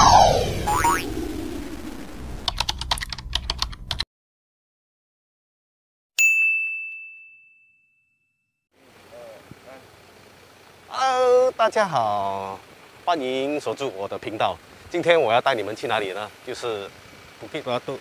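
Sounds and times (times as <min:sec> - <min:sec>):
falling pitch sweep: 0:00.0 - 0:02.6
high bell ding: 0:06.2 - 0:08.6.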